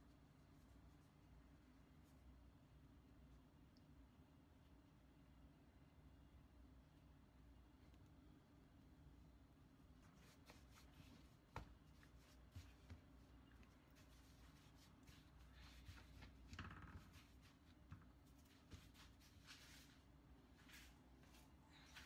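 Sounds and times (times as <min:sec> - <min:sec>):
low steady hum: 0:00.0 - 0:22.0
dough rustling and scuffing: 0:09.8 - 0:22.0.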